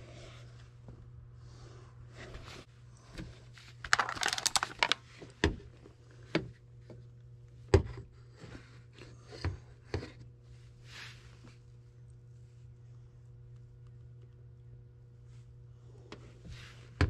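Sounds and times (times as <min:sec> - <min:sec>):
steady low hum: 0:00.0 - 0:17.0
crinkling rustle: 0:03.6 - 0:05.0.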